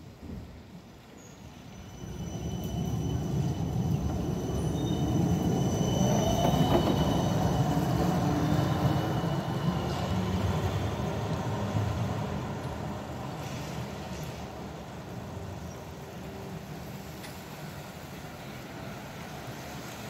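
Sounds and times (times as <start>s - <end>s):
tram wheels rumbling on rails: 0.1s - 20.0s
high wheel squeal: 1.6s - 11.1s.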